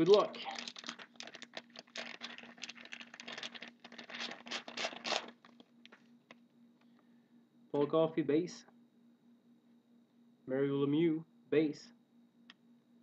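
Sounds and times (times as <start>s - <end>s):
plastic wrapper crinkling: 0.0s - 6.0s.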